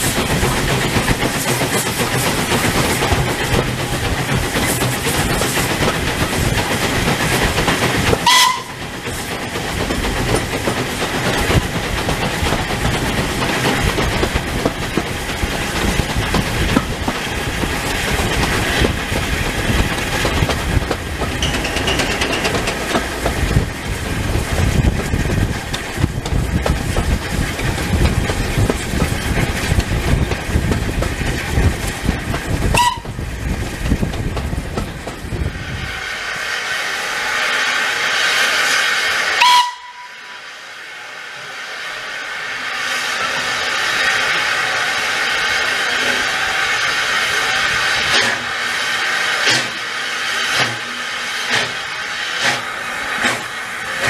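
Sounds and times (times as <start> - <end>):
rail clatter: 0.0 - 40.1, 42.8 - 48.6, 49.3 - 54.0
steam hissing: 0.0 - 54.0
steam whistle: 8.2 - 8.8, 32.7 - 33.2, 39.4 - 40.6.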